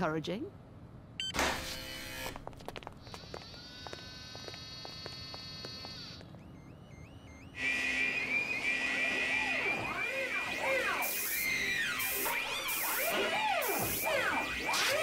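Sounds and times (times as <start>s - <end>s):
electronic hum with ticks: 1.2s - 7.6s
pulsing whir: 3.0s - 15.0s
warbling electronic tone: 5.5s - 15.0s.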